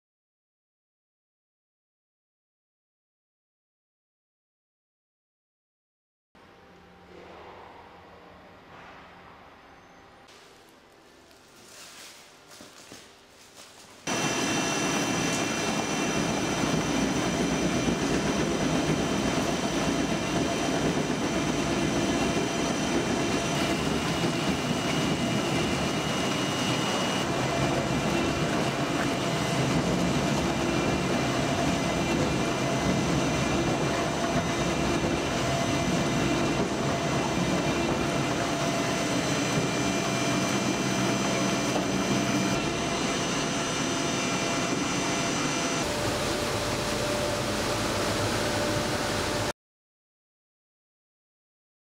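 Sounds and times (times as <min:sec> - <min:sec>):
industrial shredder running: 0:14.1 - 0:49.5
steady high machine tones: 0:14.1 - 0:49.5.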